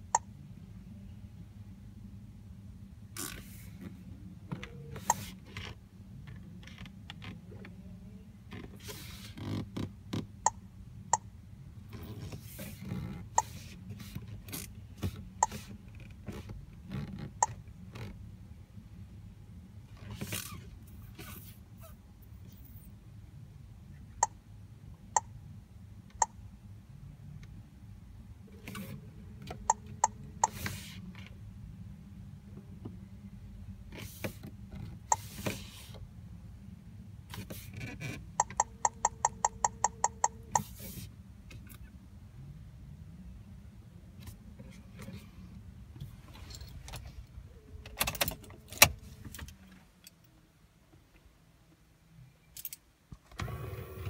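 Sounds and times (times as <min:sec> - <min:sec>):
steady low hum: 0:00.0 - 0:52.4
touchscreen key-press beeps: 0:38.4 - 0:40.7.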